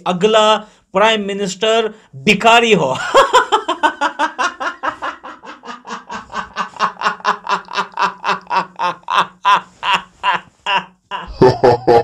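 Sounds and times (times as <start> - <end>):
man laughing hard: 3.0 - 12.0.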